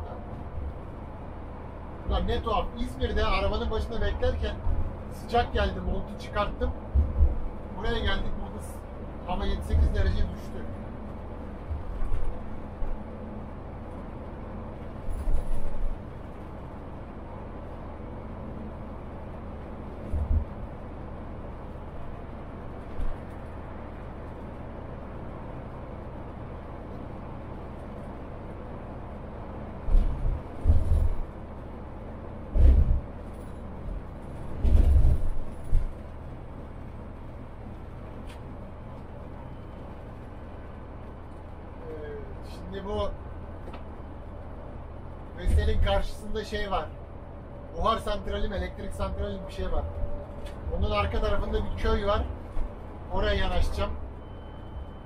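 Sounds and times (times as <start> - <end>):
engine and road rumble: 0.0 - 55.0
low bumps: 6.5 - 8.3, 19.4 - 25.2, 29.7 - 39.1
loud deep thumps: 32.5 - 33.1.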